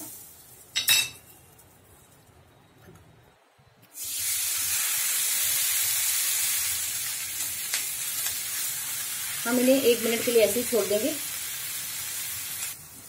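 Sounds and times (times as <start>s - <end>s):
butter sizzling on hot griddle: 4.0s - 13.0s.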